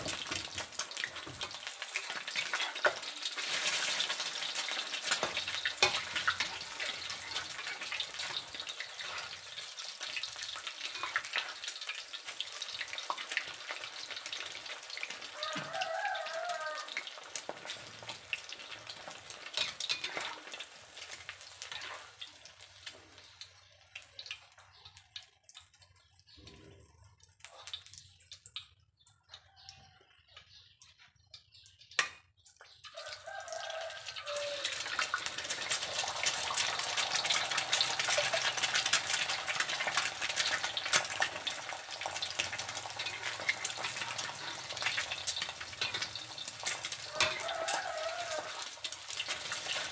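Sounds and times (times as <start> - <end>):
hot oil sizzling: 0.0 - 28.8, 30.9 - 49.9
metal spatula scraping pan: 1.2 - 9.6, 18.9 - 22.2, 36.6 - 47.5, 48.6 - 49.9.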